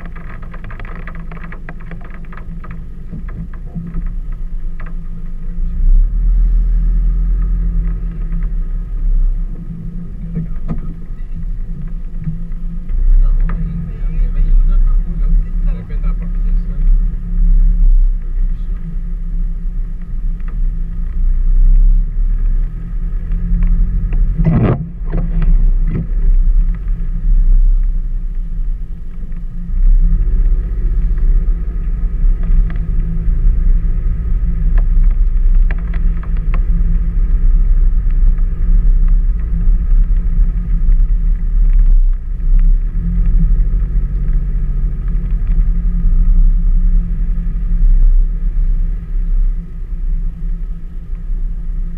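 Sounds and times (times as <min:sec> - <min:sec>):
car engine and road noise: 0:00.0 - 0:51.9.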